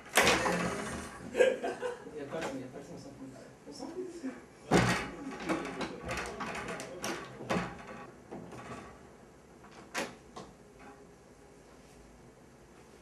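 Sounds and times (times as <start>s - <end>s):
door opening: 0.0s - 1.4s, 4.7s - 8.9s.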